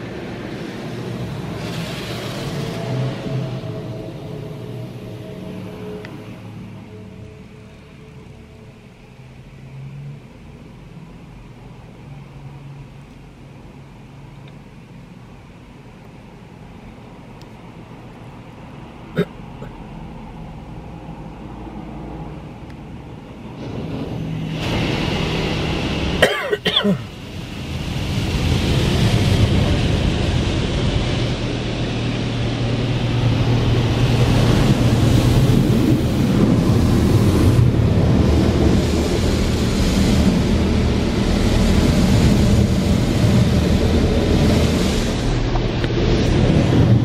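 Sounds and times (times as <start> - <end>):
water spray hitting car roof: 0.2 - 3.2.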